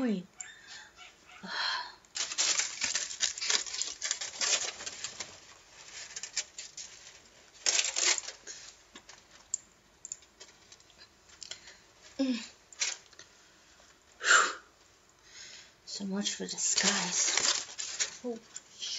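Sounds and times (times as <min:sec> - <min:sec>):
aluminium foil crinkling: 0:02.1 - 0:14.2, 0:16.2 - 0:18.9.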